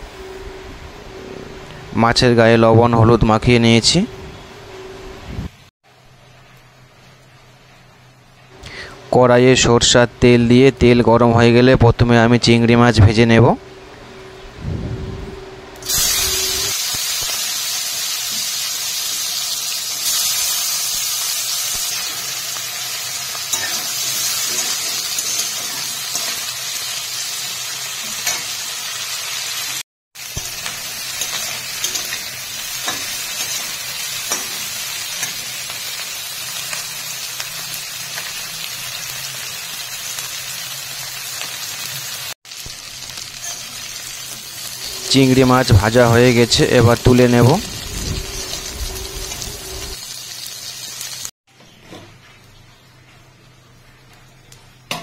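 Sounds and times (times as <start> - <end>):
prawns sizzling in hot oil: 15.8 - 51.4.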